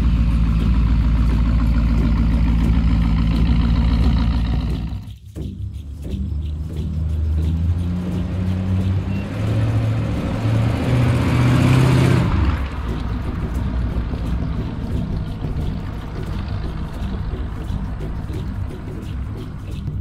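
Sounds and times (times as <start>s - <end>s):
car engine driving past: 6.0s - 19.9s.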